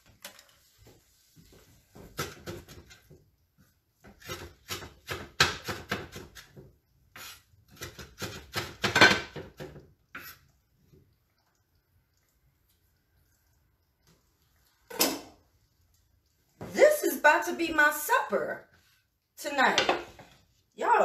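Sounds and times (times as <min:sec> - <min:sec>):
knife chopping on wooden board: 0:04.1 - 0:06.6, 0:07.2 - 0:09.8.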